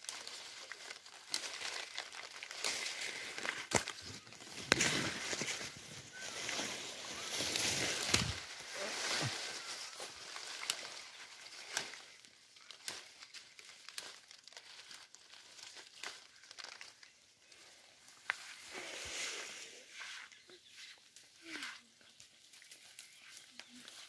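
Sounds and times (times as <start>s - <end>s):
shrub leaves and twigs rustling: 0.0s - 24.0s.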